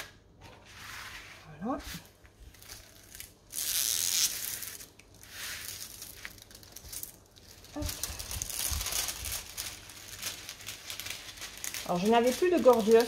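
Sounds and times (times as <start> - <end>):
plastic film crinkling: 2.1 - 13.0.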